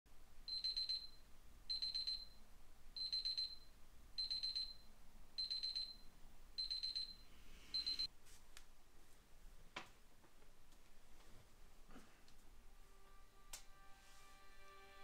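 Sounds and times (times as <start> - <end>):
phone alarm beeping: 0.5 - 2.4, 3.0 - 8.1.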